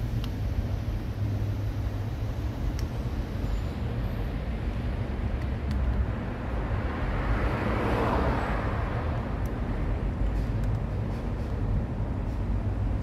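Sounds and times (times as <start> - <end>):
street traffic rumble: 0.0 - 13.0
vehicle passing: 6.3 - 11.5.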